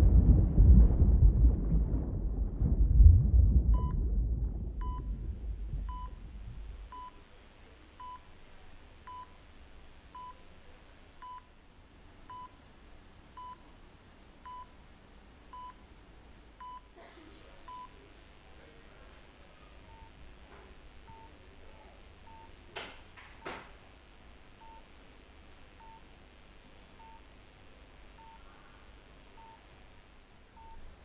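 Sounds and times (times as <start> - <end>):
low rumble: 0.0 - 7.0
heart monitor beeping: 3.7 - 4.0, 4.8 - 5.2, 5.8 - 6.2, 6.9 - 7.2, 8.0 - 8.3, 9.1 - 9.4, 10.1 - 10.4, 11.2 - 11.5, 12.3 - 12.6, 13.4 - 13.6, 14.4 - 14.7, 15.5 - 15.8, 16.6 - 16.9, 19.9 - 20.2, 21.1 - 21.3, 22.3 - 22.6, 24.6 - 24.9, 25.8 - 26.0, 27.0 - 27.3, 28.2 - 28.4, 29.4 - 29.6, 30.6 - 30.8.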